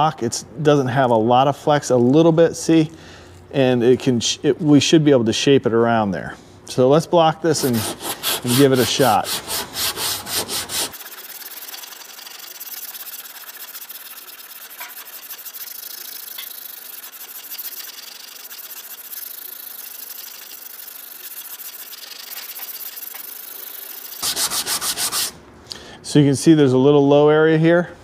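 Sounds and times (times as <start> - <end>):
sanding block rasping on filler: 7.5 - 25.4.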